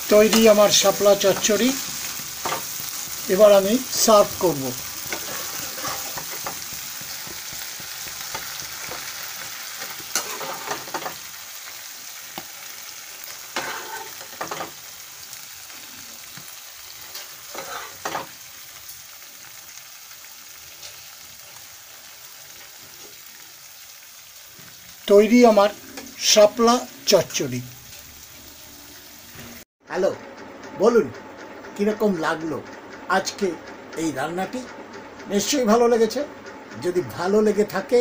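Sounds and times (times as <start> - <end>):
curry sizzling in a pan: 0.0 - 29.7
spatula scraping and knocking pan: 5.0 - 11.2, 13.5 - 14.8, 17.1 - 18.4.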